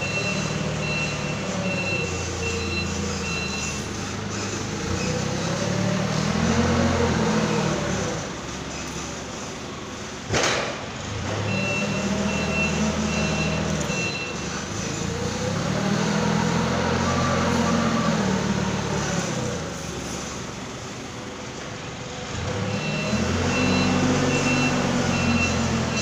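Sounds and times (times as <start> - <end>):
reversing alarm beeps: 0.0 - 4.1, 11.4 - 14.6, 22.6 - 26.0
forklift engine revving: 0.0 - 26.0.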